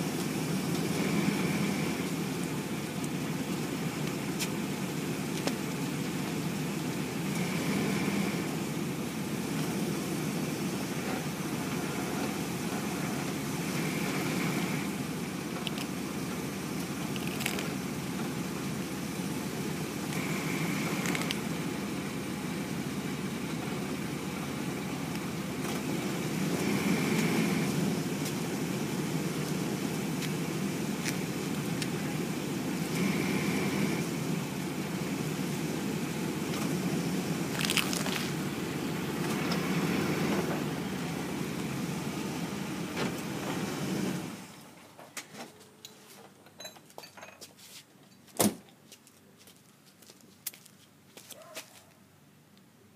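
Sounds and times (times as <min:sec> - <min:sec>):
truck engine idling: 0:00.0 - 0:45.8
egg shell cracking: 0:17.1 - 0:17.7, 0:37.5 - 0:38.3.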